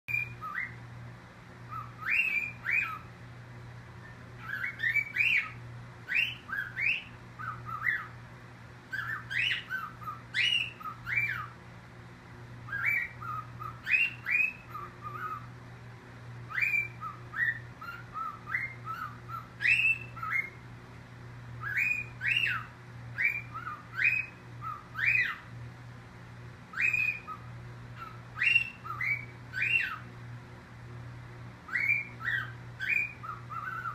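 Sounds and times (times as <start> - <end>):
steady low hum: 0.0 - 33.9
cockatiel chirping and whistling: 0.1 - 0.8, 1.7 - 3.1, 4.0 - 8.1, 8.9 - 11.5, 12.6 - 15.5, 16.5 - 20.6, 21.6 - 25.5, 26.7 - 30.1, 31.7 - 33.9.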